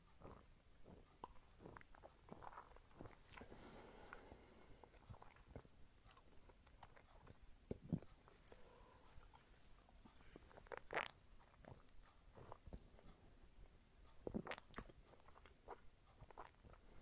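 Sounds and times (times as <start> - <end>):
mouth smacking and tongue clicks: 0.1 - 3.5, 4.8 - 9.5, 10.1 - 13.2, 14.1 - 16.9.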